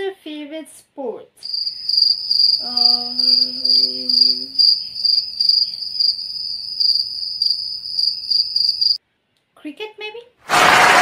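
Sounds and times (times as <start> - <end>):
crickets chirping: 1.4 - 9.0.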